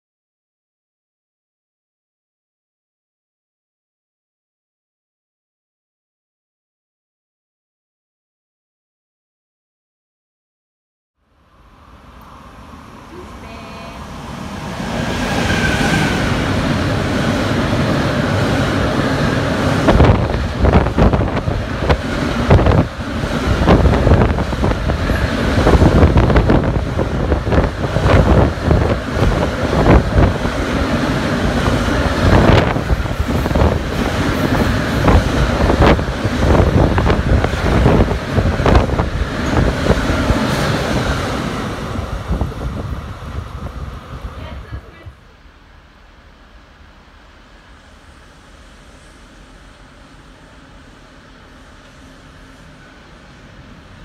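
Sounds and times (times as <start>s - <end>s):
freight train passing: 11.2s - 54.0s.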